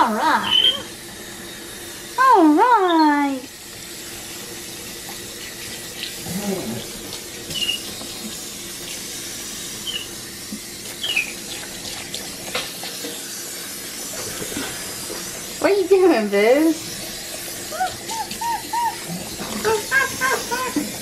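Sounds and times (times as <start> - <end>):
tap water splashing into sink: 10.6 - 13.2
monkey squeaking: 17.7 - 19.0.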